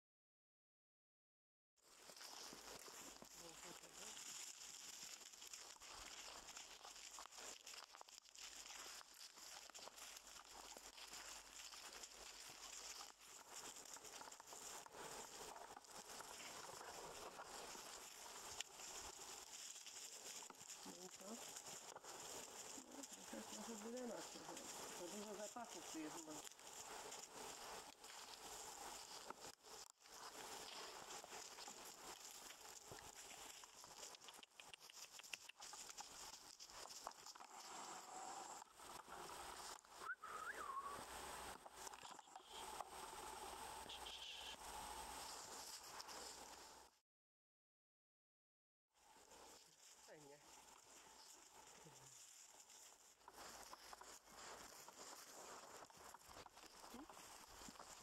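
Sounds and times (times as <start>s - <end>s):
footsteps crunching dry leaves: 16.4s - 35.0s, 49.8s - 58.0s
small clicks: 30.6s - 37.8s.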